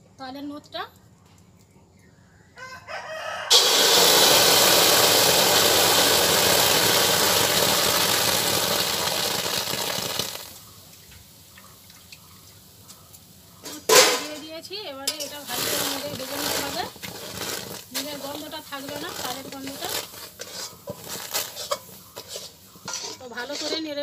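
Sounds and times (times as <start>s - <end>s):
fruit pulp sizzling in hot pan: 3.5s - 24.0s.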